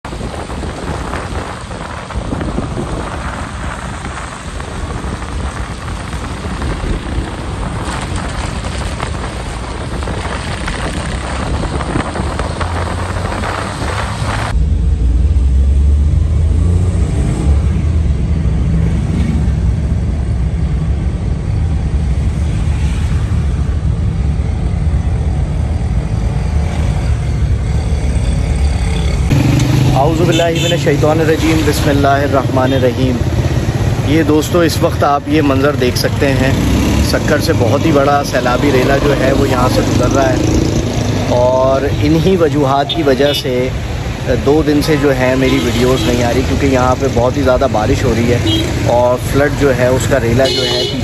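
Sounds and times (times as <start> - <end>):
deep vehicle rumble: 0.0 - 51.0
tyres hissing on wet road: 0.1 - 14.5, 29.4 - 51.0.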